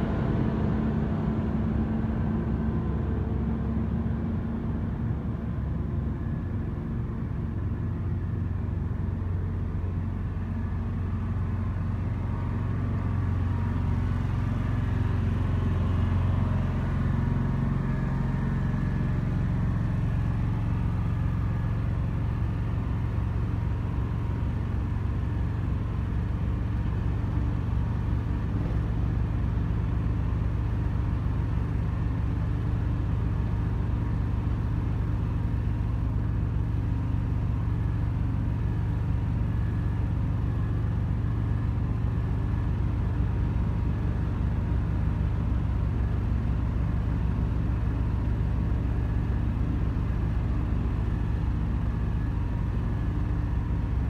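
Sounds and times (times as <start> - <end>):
engine rumbling: 0.0 - 54.0.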